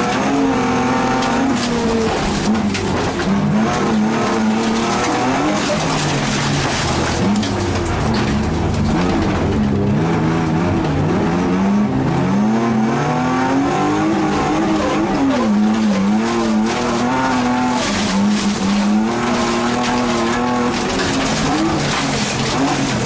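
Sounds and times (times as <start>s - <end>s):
race car engine revving: 0.0s - 23.0s
tyres on gravel rushing: 1.0s - 9.8s, 14.0s - 23.0s.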